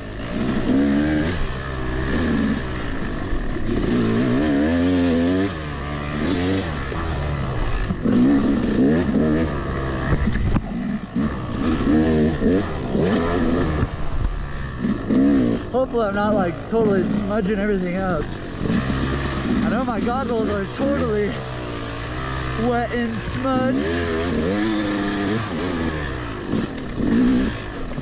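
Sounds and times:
dirt bike engine revving: 0.0s - 28.0s
man talking: 15.7s - 18.4s, 19.6s - 21.4s, 22.6s - 24.3s.

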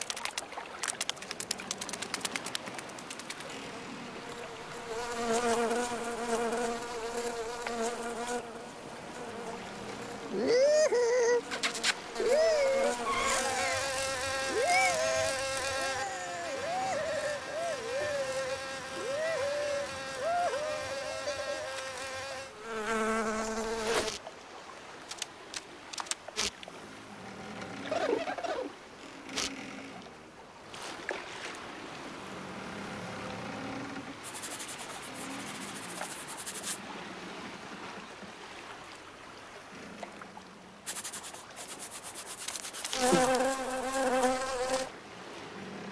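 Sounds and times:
scattered clicks: 0.0s - 3.5s
cartoon fly wing buzz: 11.3s - 24.2s, 40.9s - 44.9s.

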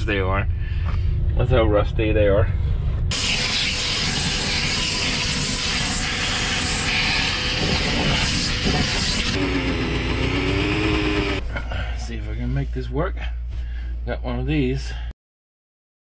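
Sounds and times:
low steady hum: 0.0s - 4.6s, 5.7s - 15.1s
vacuum cleaner sucking debris: 3.1s - 11.4s.

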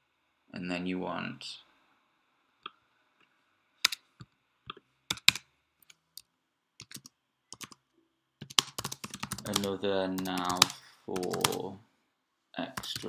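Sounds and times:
keyboard typing: 4.7s - 6.0s, 6.8s - 7.8s, 8.4s - 11.7s, 12.8s - 13.0s.

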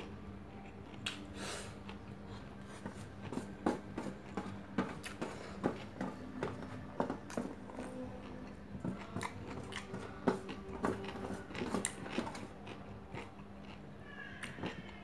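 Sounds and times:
close chewing with wet smacks: 7.7s - 13.8s.

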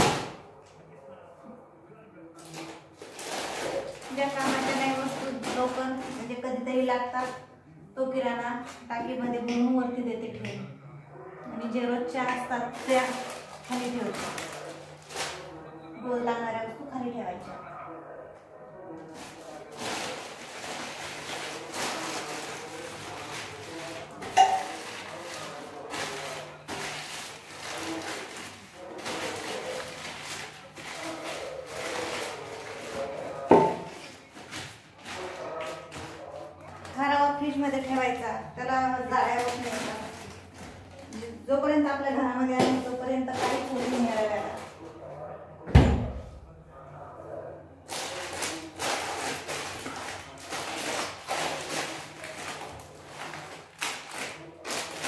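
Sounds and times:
plastic bag rustling: 2.4s - 7.5s, 12.1s - 15.6s, 19.1s - 44.9s, 47.8s - 55.0s.

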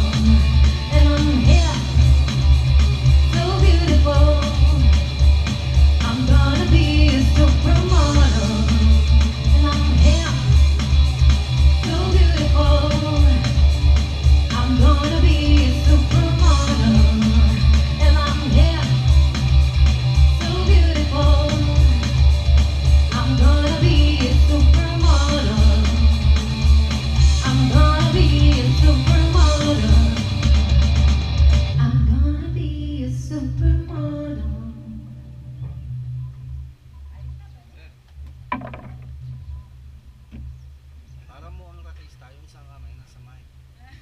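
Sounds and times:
woman singing: 0.0s - 2.1s, 3.2s - 5.1s, 6.0s - 10.7s, 11.7s - 13.8s, 14.4s - 19.2s, 20.3s - 22.2s, 23.1s - 26.3s, 27.4s - 30.4s, 31.8s - 35.4s
drums keeping a steady beat: 0.0s - 31.8s
electric guitar: 0.0s - 32.6s
bass guitar: 0.0s - 36.9s.

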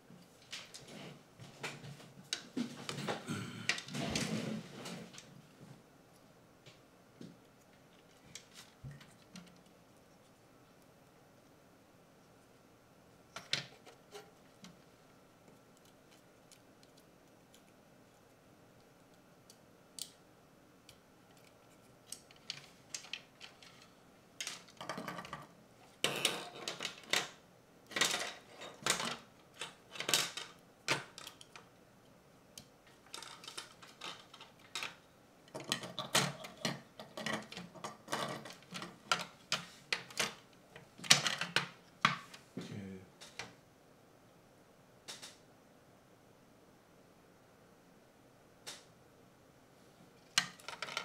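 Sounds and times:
plastic parts clicking and rustling: 21.3s - 31.7s, 32.6s - 42.4s, 50.2s - 51.0s.

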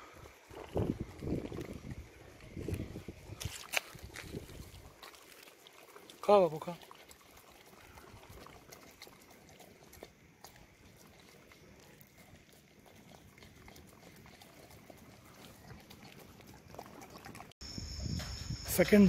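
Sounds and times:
dog chomping and smacking: 6.8s - 17.5s.

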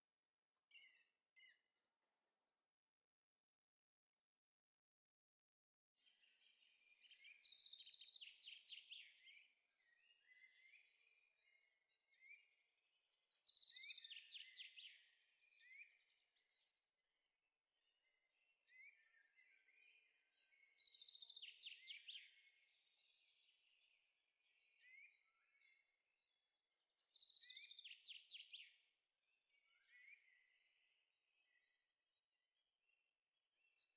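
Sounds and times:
bird chirps: 6.0s - 16.6s, 18.0s - 31.8s, 33.4s - 33.9s.

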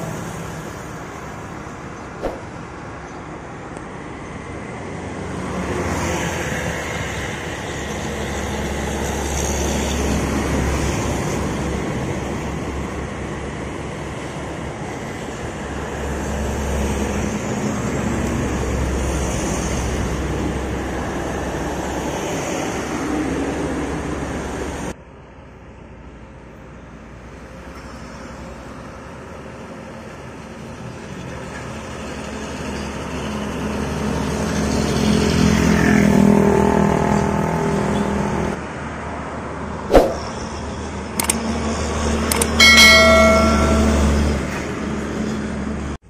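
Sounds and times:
tyre and road noise: 0.0s - 24.8s, 39.8s - 46.0s
vehicle engines passing: 27.4s - 38.9s, 39.5s - 46.0s.

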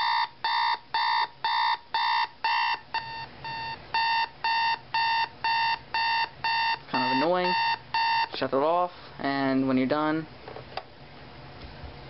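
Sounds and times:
alarm clock beeping: 0.0s - 8.4s.

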